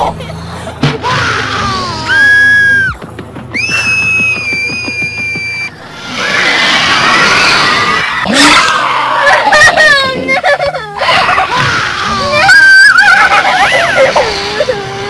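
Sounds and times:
cartoon girl screaming: 1.0 - 3.0, 10.9 - 15.0
clamour of shrieks: 1.0 - 9.4, 11.1 - 14.4.

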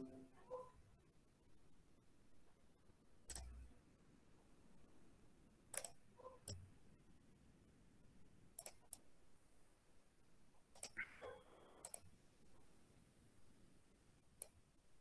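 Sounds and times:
faint mouse clicks: 3.3 - 3.7, 5.7 - 6.6, 8.6 - 9.1, 10.7 - 12.1, 14.4 - 14.6.

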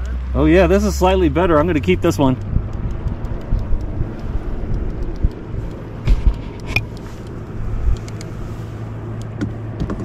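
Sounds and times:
low steady rumble: 0.0 - 10.0
sharp click: 2.3 - 8.3.

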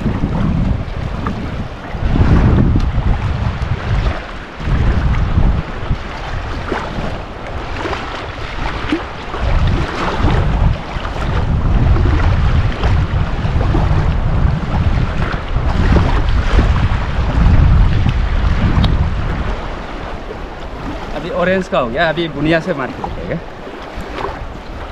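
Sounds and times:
fast river rushing: 0.0 - 24.9
wind buffeting microphone: 0.0 - 24.9.

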